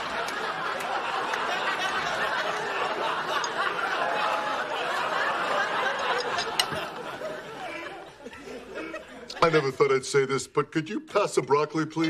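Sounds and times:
studio audience laughing: 0:00.0 - 0:10.3.

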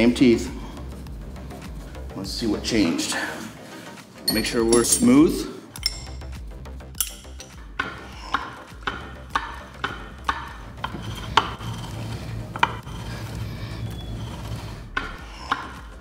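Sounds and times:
gears rubbing with sharp clicks: 0:07.0 - 0:16.0.

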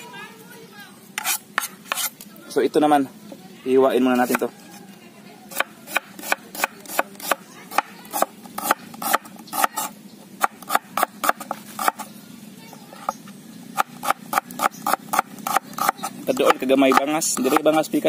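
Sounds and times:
knife chopping on cutting board: 0:01.2 - 0:02.1, 0:05.5 - 0:12.0, 0:13.8 - 0:17.9.

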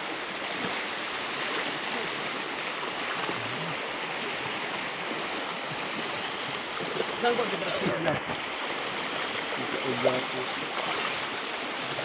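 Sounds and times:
creek water rushing: 0:00.0 - 0:12.0.

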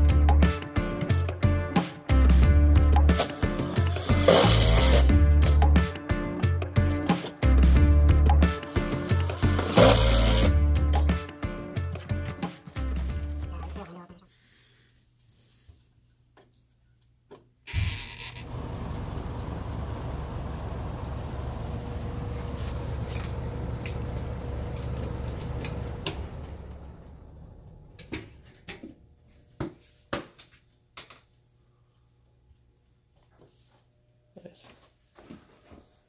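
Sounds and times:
fan winding down: 0:07.8 - 0:10.6, 0:18.2 - 0:28.9
fan running with air rumble: 0:18.1 - 0:29.5.

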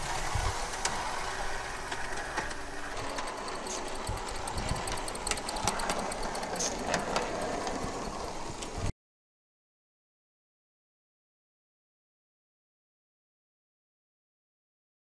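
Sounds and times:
model steam train clattering: 0:00.0 - 0:08.9.

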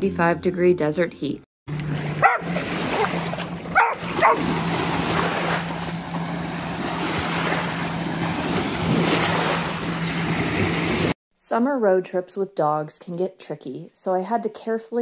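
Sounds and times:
dogs splashing through water: 0:01.7 - 0:11.2
low hum: 0:01.7 - 0:11.2
small waves: 0:01.7 - 0:11.2
dog barking: 0:02.2 - 0:03.1, 0:03.7 - 0:04.4.

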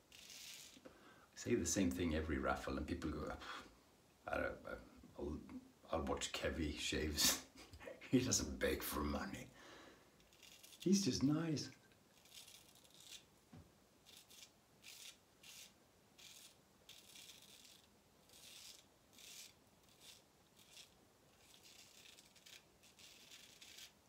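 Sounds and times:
razor scraping stubble: 0:00.0 - 0:00.8, 0:10.2 - 0:11.5, 0:12.1 - 0:13.3, 0:14.0 - 0:24.0.

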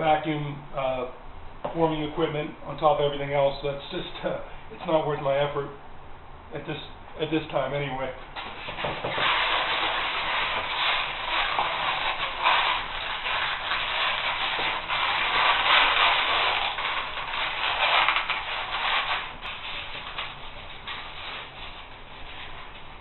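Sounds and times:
foam rubbing and scraping: 0:08.4 - 0:23.0.

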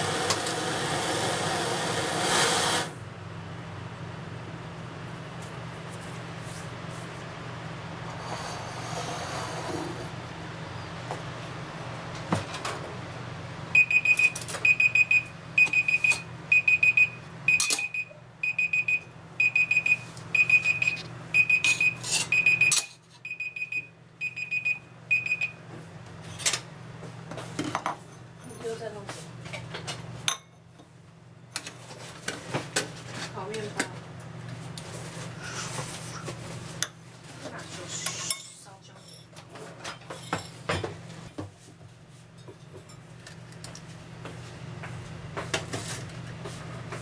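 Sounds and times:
timer alarm high beeps: 0:13.8 - 0:25.6.

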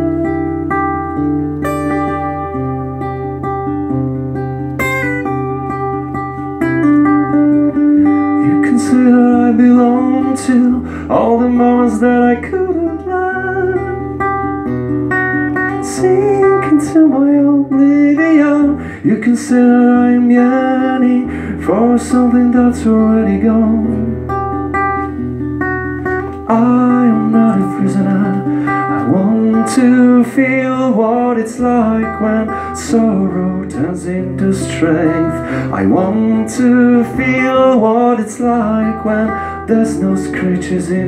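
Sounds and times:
lead guitar melody: 0:00.0 - 0:41.0
strummed acoustic guitar: 0:00.0 - 0:41.0
wordless singing: 0:26.4 - 0:41.0.

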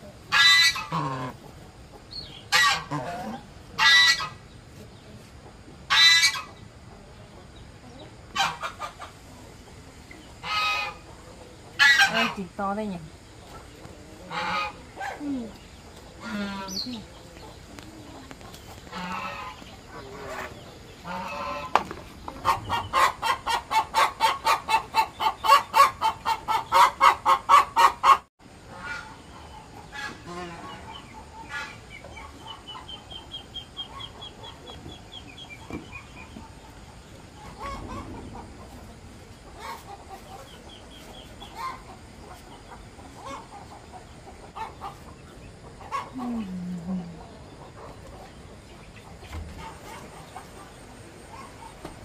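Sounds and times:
hen cackling: 0:00.3 - 0:04.5, 0:05.9 - 0:06.6, 0:08.3 - 0:09.2, 0:10.4 - 0:11.1, 0:11.8 - 0:12.6, 0:14.2 - 0:15.6, 0:16.2 - 0:17.1, 0:18.9 - 0:34.8, 0:41.4 - 0:48.3
soft scattered clucking: 0:33.7 - 0:52.0.

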